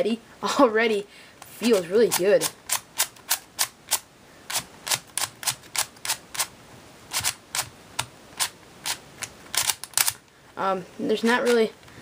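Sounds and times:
plastic puzzle layers clacking: 0:07.1 - 0:10.2.

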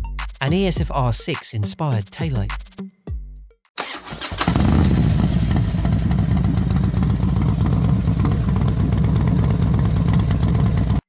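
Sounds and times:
motorcycle engine running: 0:04.3 - 0:11.0.

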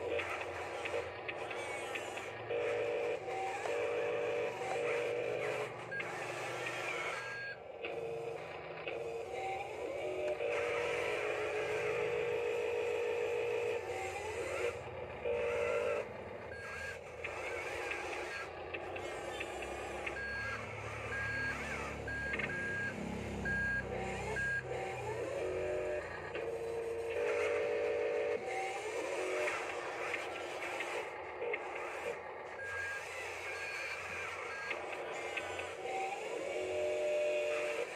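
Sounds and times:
low electric motor rumble: 0:00.0 - 0:37.9
toy reversing beeper: 0:00.1 - 0:31.1, 0:31.7 - 0:37.9.

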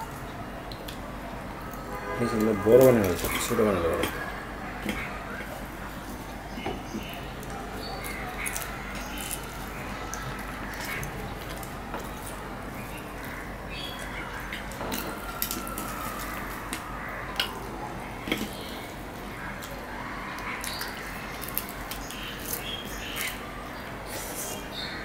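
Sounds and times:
chewing: 0:03.0 - 0:24.7
fried bread tearing: 0:04.9 - 0:17.6, 0:18.2 - 0:24.7.

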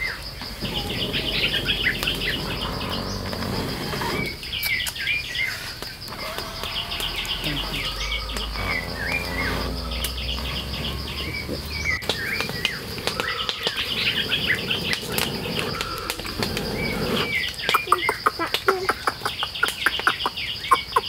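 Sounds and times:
high insect drone: 0:00.0 - 0:21.0
small birds chirping: 0:00.0 - 0:21.0
sharp clicks: 0:04.5 - 0:05.2, 0:05.8 - 0:10.6
breath blown onto embers: 0:05.5 - 0:17.6.

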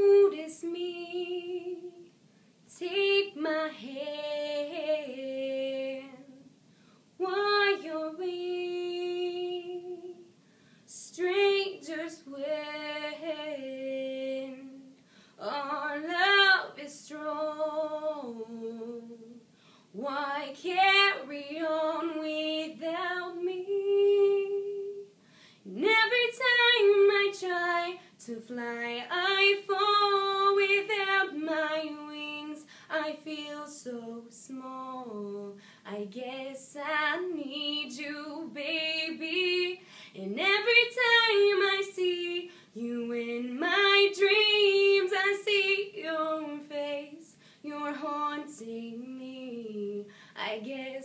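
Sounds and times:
woman singing a cappella: 0:00.0 - 0:51.0.

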